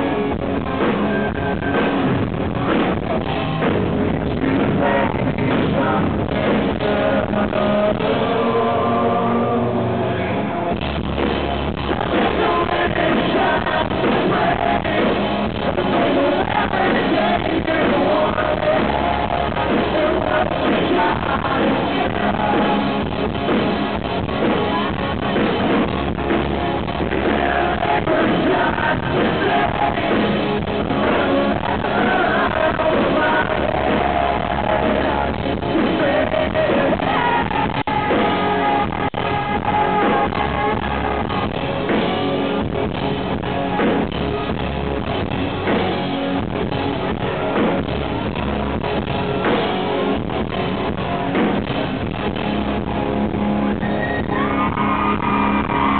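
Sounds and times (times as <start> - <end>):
drums: 0.0 - 55.9
electric guitars: 0.0 - 55.9
male lead vocal singing: 4.0 - 10.3, 11.8 - 23.2, 27.0 - 41.7.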